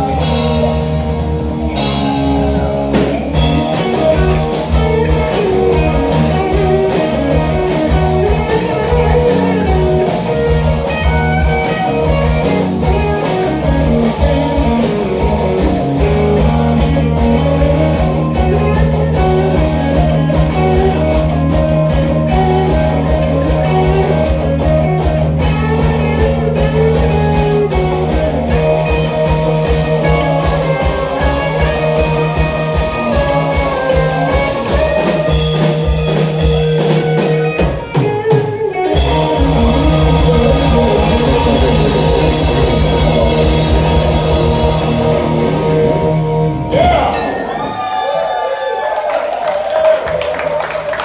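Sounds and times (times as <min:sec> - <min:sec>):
drum kit: 0:00.0 - 0:48.9
electric guitars: 0:00.0 - 0:51.0
person singing: 0:39.0 - 0:44.8.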